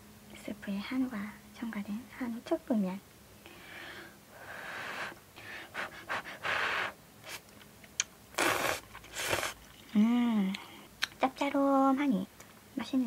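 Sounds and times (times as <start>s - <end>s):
person slurping noodles: 8.4s - 9.6s.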